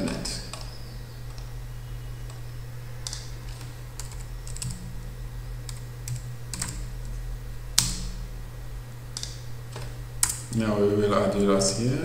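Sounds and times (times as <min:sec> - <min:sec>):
computer keyboard typing: 0:00.0 - 0:01.5, 0:03.0 - 0:05.0, 0:05.6 - 0:07.2, 0:09.1 - 0:10.7
steady low hum: 0:00.0 - 0:12.0.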